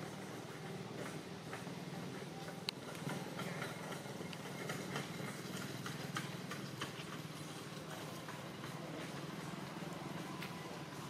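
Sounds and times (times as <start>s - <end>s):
engine idling hum: 0.0s - 11.0s.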